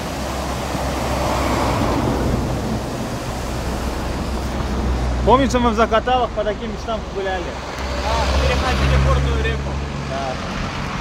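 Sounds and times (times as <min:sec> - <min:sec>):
river rushing over stones: 0:00.0 - 0:11.0.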